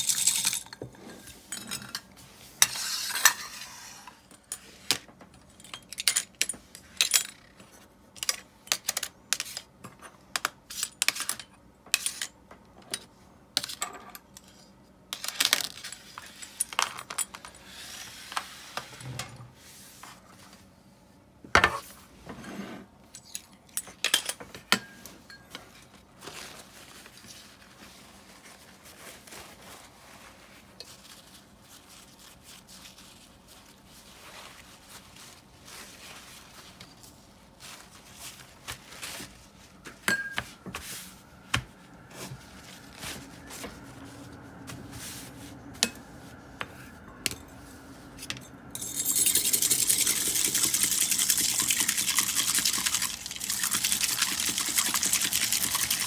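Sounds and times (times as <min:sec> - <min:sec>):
small metal parts clinking: 0:48.8 - 0:50.7.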